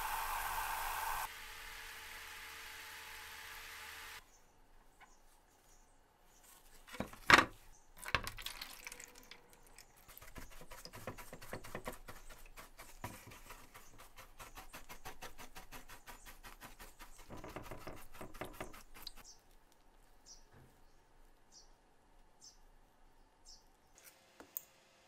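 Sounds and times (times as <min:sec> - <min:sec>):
paintbrush scrubbing brass plate: 0:10.0 - 0:19.2.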